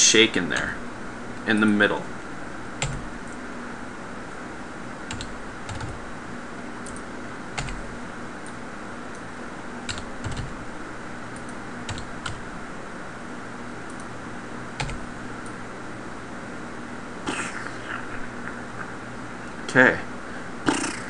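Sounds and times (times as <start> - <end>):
faint low hum: 0.0 - 21.0
keyboard and mouse clicking: 2.8 - 3.4, 5.1 - 6.0, 6.8 - 7.8, 9.9 - 10.6, 11.3 - 12.4, 13.9 - 14.1, 14.8 - 15.6.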